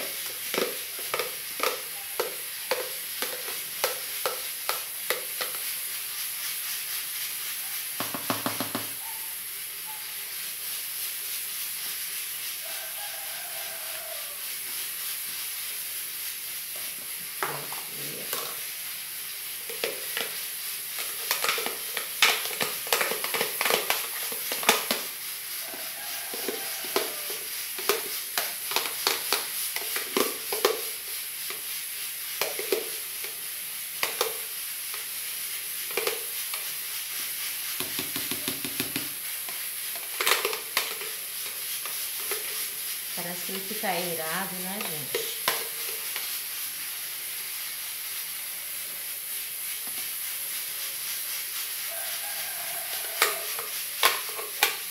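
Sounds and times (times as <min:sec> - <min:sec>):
steady hiss: 0:00.0 - 0:54.9
spoon scraping plastic jar: 0:25.7 - 0:30.8.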